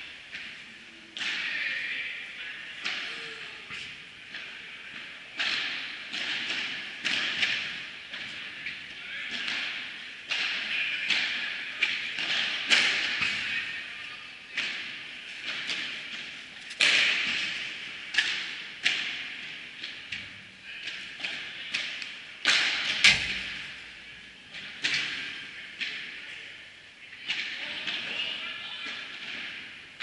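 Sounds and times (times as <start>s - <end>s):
padel balls struck with rackets: 3.7s - 8.3s, 20.9s - 23.8s.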